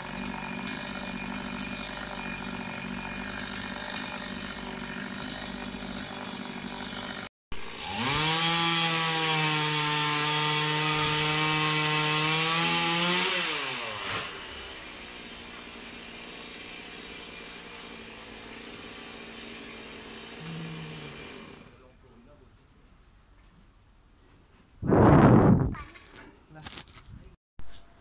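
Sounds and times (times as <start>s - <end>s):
chainsaw engine revving: 0.0s - 21.9s.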